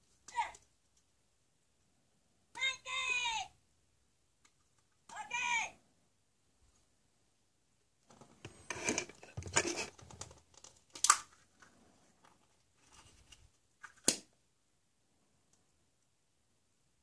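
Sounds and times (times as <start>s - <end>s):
plastic egg snapping open: 10.9s - 11.3s.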